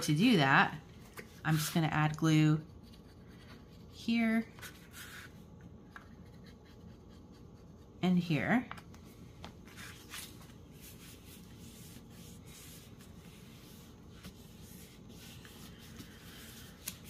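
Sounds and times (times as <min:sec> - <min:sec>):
paper rubbing and rustling: 0:09.6 - 0:17.0.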